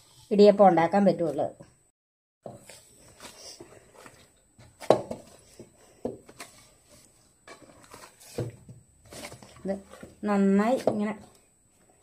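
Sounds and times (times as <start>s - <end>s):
hand kneading dough: 2.5s - 12.0s.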